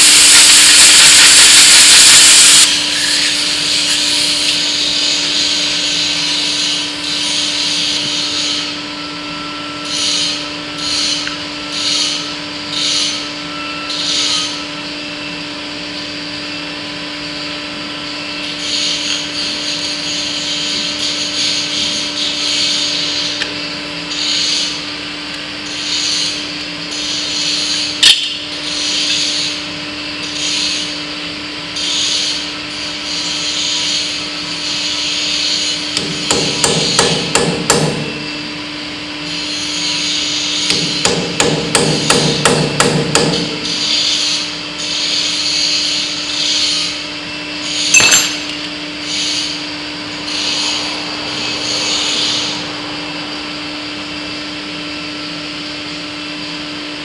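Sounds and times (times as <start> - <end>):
steady hum: 0.0 - 7.0, 46.9 - 56.2.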